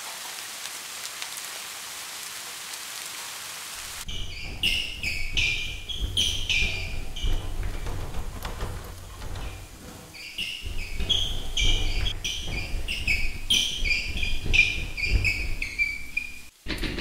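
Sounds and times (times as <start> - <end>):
low thuds: 3.8 - 17.0.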